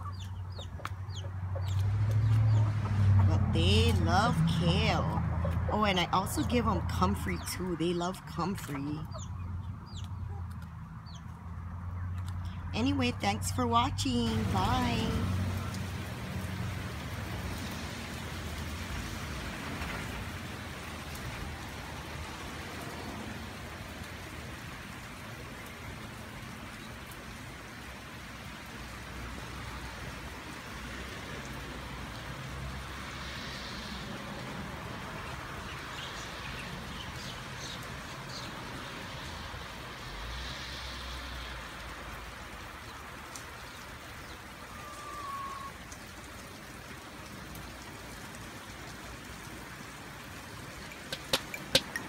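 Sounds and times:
steady rain hiss: 12.4s - 52.0s.

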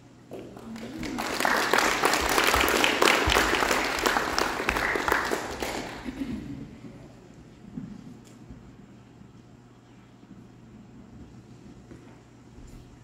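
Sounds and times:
audience applauding: 0.3s - 6.3s.

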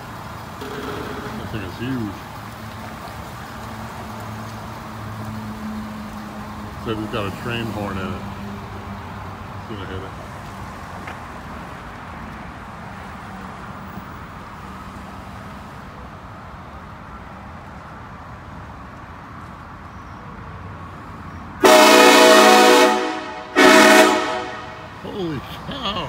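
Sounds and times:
air train horn blasts: 21.6s - 25.0s.

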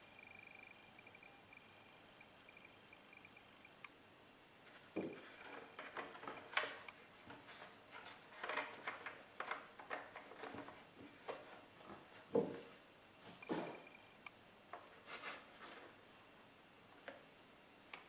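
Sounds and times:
hands tapping and scraping parts: 4.8s - 16.0s.

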